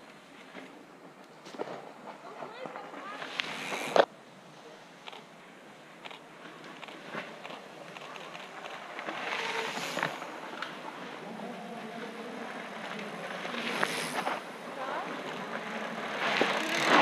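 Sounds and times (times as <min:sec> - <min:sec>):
bike tyres rushing on dirt: 0:01.4 - 0:04.1, 0:06.3 - 0:17.0
bike clicks: 0:03.2 - 0:04.1, 0:15.3 - 0:17.0.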